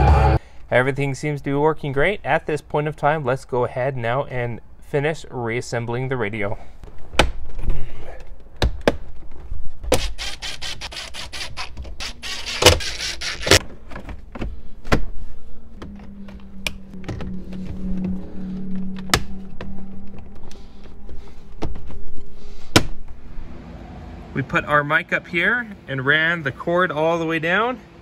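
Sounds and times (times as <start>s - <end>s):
steady low hum: 12.0s - 28.0s.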